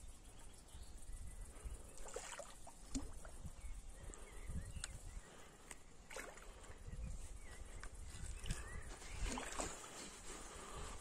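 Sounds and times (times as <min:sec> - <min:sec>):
water splashing and sloshing: 0:01.9 - 0:03.6, 0:06.0 - 0:06.8, 0:08.2 - 0:10.5
short splashes or clicks: 0:02.0 - 0:03.3.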